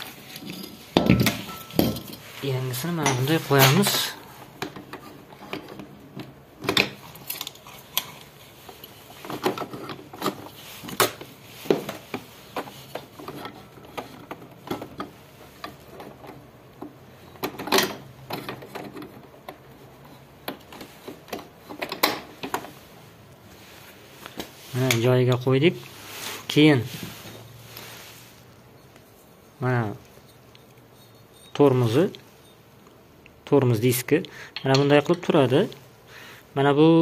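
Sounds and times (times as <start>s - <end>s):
metal and plastic parts handled: 3.0s - 22.8s.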